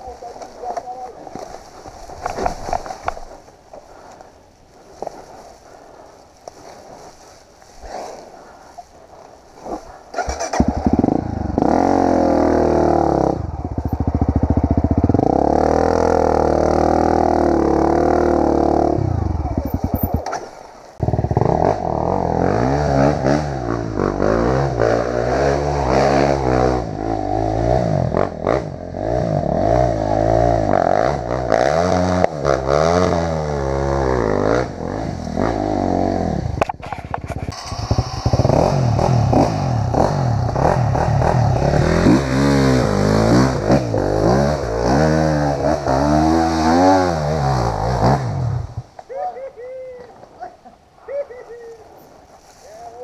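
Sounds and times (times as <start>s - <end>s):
dirt bike engine revving: 10.1s - 36.6s, 37.4s - 48.9s.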